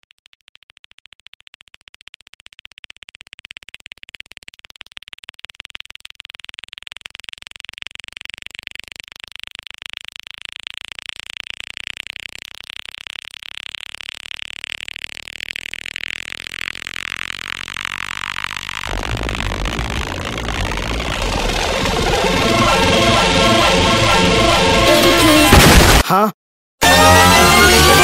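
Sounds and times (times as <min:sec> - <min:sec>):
rapid stuttering electronic music: 0:10.6 - 0:26.0, 0:26.8 - 0:28.0.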